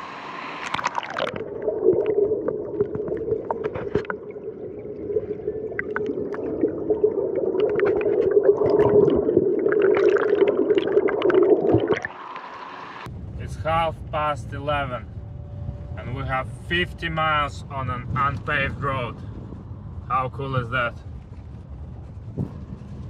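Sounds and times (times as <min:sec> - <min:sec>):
muffled underwater stream rushing: 0:00.0 - 0:13.1
bubbles popping and crackling: 0:00.6 - 0:12.5.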